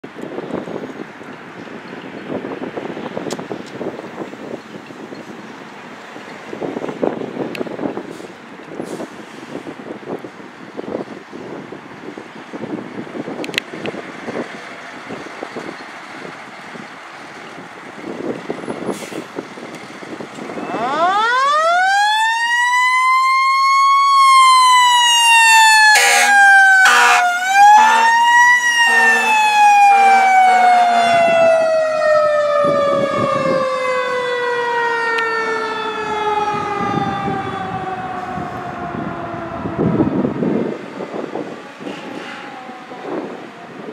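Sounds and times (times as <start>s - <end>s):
fire engine siren wailing: 13.4s - 43.9s
truck engine rumbling: 25.8s - 31.6s
horn blasts: 25.9s - 28.2s, 28.8s - 31.2s.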